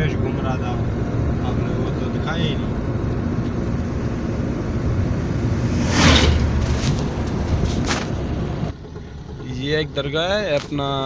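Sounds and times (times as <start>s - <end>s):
vehicle road and wind rumble: 0.0s - 11.0s
truck passing whoosh: 0.6s - 8.8s.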